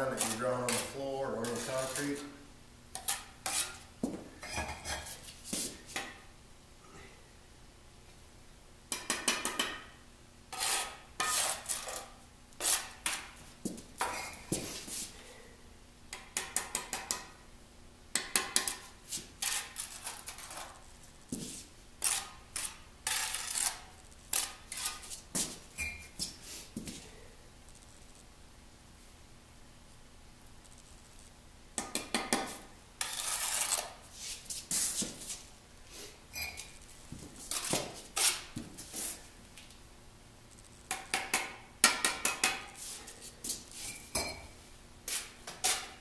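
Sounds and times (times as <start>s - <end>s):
trowel scraping bricks and mortar: 0.0s - 2.3s, 3.0s - 5.2s, 10.5s - 13.3s, 19.4s - 20.8s, 22.0s - 25.2s, 32.5s - 34.0s.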